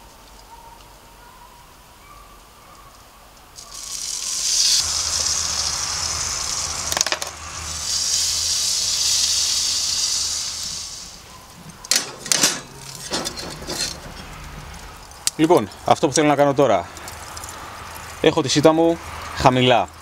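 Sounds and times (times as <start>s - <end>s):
loud rushing hiss: 3.6s - 11.3s
metal tongs clinking on grill grate: 11.6s - 15.9s.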